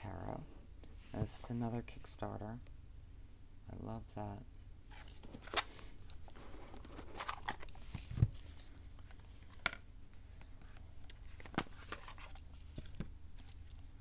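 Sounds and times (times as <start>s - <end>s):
cardboard and paper rustling: 4.9s - 13.6s.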